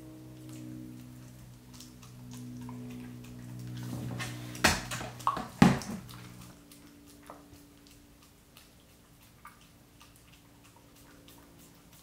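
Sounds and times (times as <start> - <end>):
dog licking and chewing: 0.0 - 12.0.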